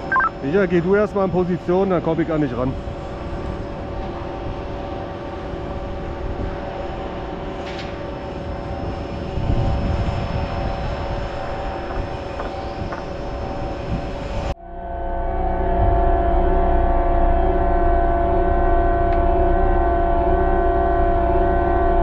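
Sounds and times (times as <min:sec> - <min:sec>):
crane machinery drone: 0:00.0 - 0:22.0
wind rumbling on microphone: 0:02.6 - 0:14.6.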